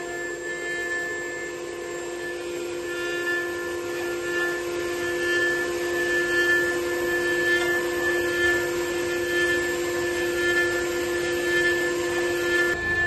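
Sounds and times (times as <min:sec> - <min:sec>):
cutter machining fibreboard: 0:00.0 - 0:13.0
router spindle whine: 0:00.0 - 0:13.0.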